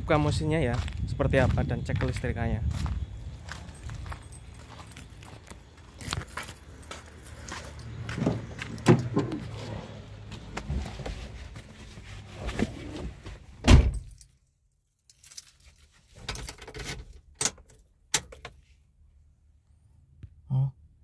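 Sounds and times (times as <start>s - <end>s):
keys jangling: 3.5s - 8.1s, 13.9s - 14.4s, 15.0s - 17.8s
car door thumping shut: 13.6s - 14.1s.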